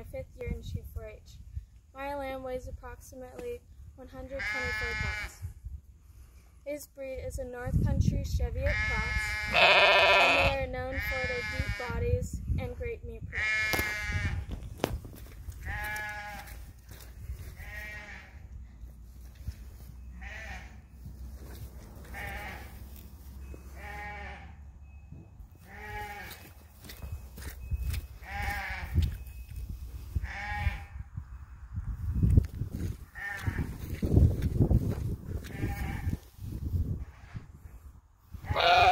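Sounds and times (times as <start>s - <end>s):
sheep bleating: 4.4s - 5.4s, 8.7s - 11.9s, 15.6s - 16.6s, 17.6s - 18.4s, 20.1s - 20.8s, 22.0s - 22.8s, 23.8s - 24.6s, 25.6s - 26.5s, 38.4s - 38.9s.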